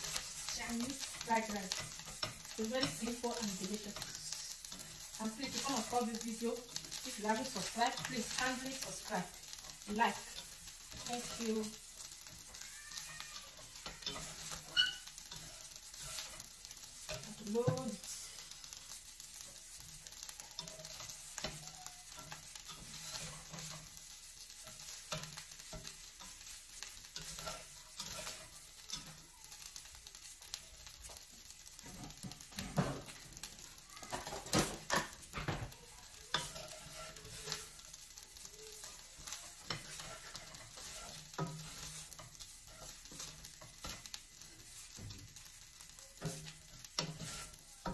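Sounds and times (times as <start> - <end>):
utensil scraping a pot: 0.0 - 17.4, 36.3 - 38.0, 38.7 - 45.1, 46.2 - 47.9
rice sizzling in a pot: 0.0 - 47.9.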